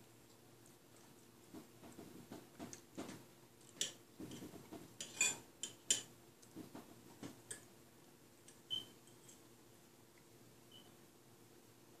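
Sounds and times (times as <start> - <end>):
forks clinking on plates: 5.0 - 6.1.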